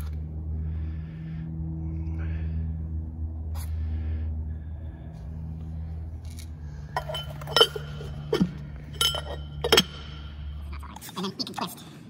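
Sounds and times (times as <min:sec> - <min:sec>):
steady low hum: 0:00.0 - 0:12.0
sharp metallic clinks: 0:06.9 - 0:10.4.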